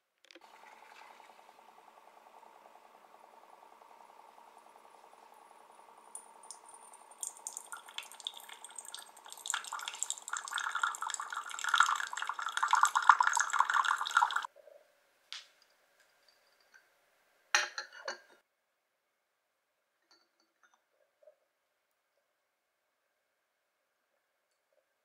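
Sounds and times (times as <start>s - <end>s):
faint machine hum: 0.3s - 25.0s
water streaming into cup: 0.4s - 1.6s, 5.2s - 14.5s.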